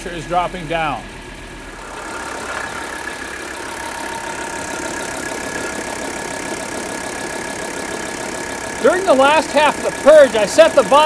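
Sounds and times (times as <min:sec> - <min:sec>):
diesel engine idling: 0:00.0 - 0:11.0
high whine: 0:01.3 - 0:11.0.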